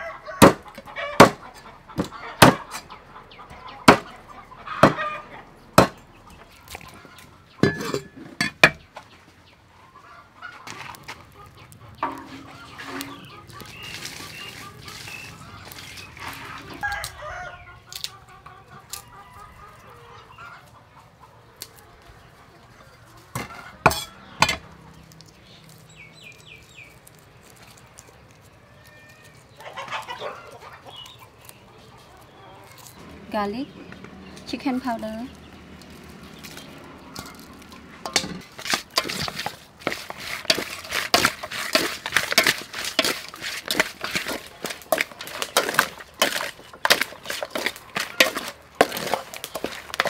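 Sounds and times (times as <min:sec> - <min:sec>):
rooster crowing: 0:00.0 - 0:02.8, 0:03.5 - 0:05.6, 0:16.3 - 0:17.8, 0:18.9 - 0:20.6
chickens clucking: 0:00.0 - 0:50.0
cleaver chopping on wooden board: 0:00.4 - 0:02.8, 0:03.8 - 0:04.1, 0:04.8 - 0:05.0, 0:05.8 - 0:06.0.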